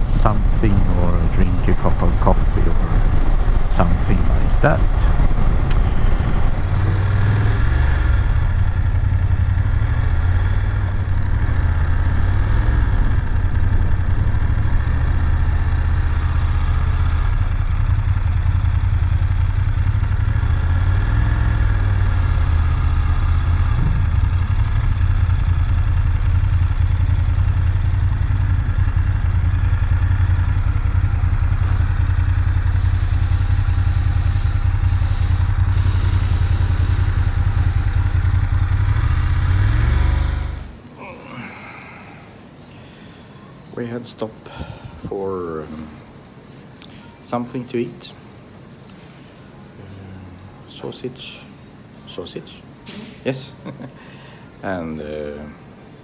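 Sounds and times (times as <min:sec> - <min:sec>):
motorcycle engine running: 0:00.0 - 0:41.5.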